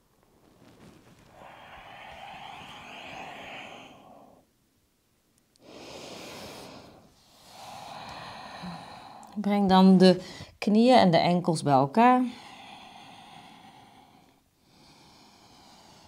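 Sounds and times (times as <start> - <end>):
woman breathing: 1.1 - 4.6, 5.6 - 9.5, 10.1 - 10.6, 12.2 - 16.0.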